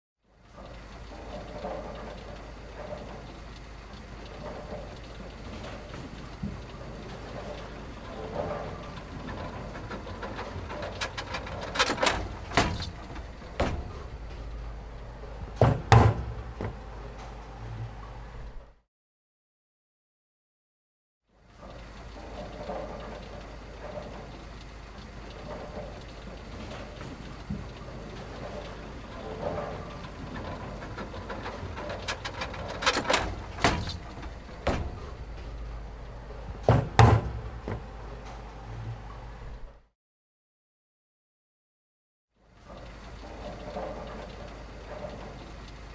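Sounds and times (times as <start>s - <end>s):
steady low rumble: 2.3s - 15.6s, 25.9s - 39.8s
bowling balls knocking: 4.0s - 18.6s, 25.3s - 39.7s.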